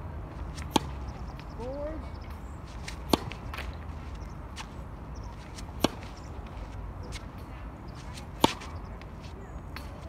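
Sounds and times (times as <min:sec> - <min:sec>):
tennis racket hitting ball: 0:00.5 - 0:01.0, 0:02.7 - 0:07.4, 0:08.0 - 0:10.0.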